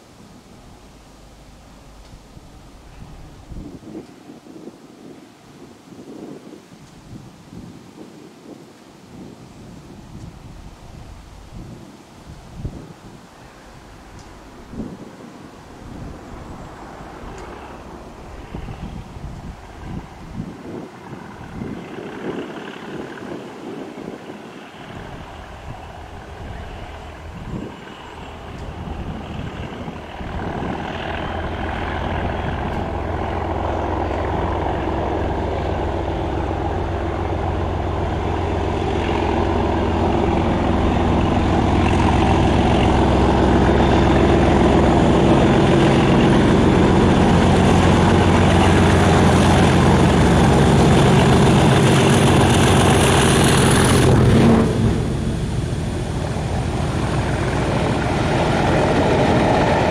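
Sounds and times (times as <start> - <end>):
diesel locomotive engine: 0.0 - 7.4, 8.4 - 59.9
coaches rolling by: 13.3 - 59.9.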